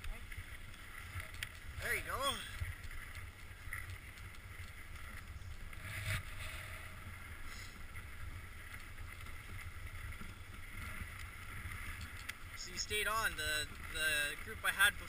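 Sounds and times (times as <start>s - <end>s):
low rumble: 0.0s - 12.0s
sled scraping or bumping: 0.0s - 15.0s.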